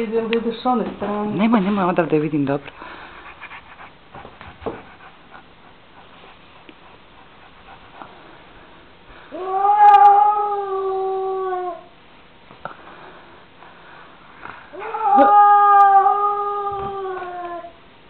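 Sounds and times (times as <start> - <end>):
cat yowling: 9.3 - 11.9, 14.8 - 17.8.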